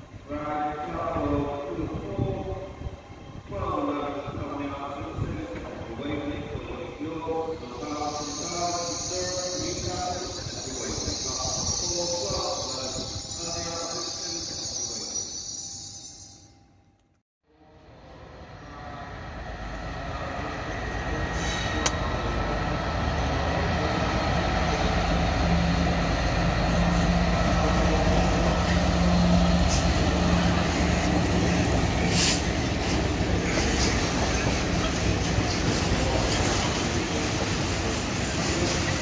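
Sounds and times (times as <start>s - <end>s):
locomotive engine hum: 17.8s - 39.0s
freight wagons rumbling: 21.1s - 39.0s.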